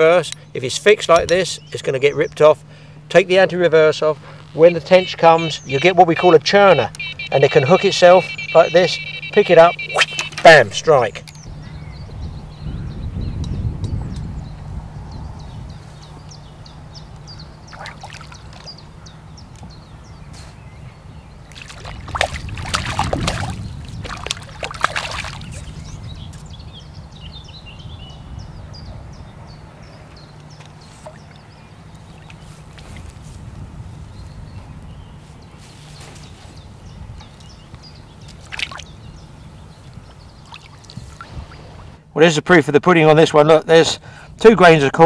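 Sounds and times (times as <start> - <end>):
fish splashing and thrashing: 17.7 - 18.8, 21.5 - 25.7, 38.4 - 38.9.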